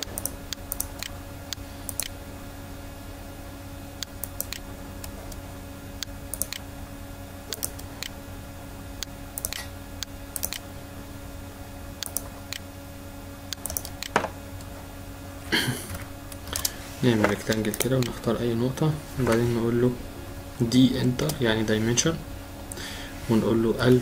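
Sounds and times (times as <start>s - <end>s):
computer mouse and keyboard clicks: 0.0s - 2.2s, 6.3s - 6.6s, 7.5s - 8.2s, 9.4s - 9.7s, 10.4s - 10.6s, 12.0s - 12.6s, 13.5s - 14.3s, 16.3s - 18.2s
steady low hum: 0.0s - 24.0s.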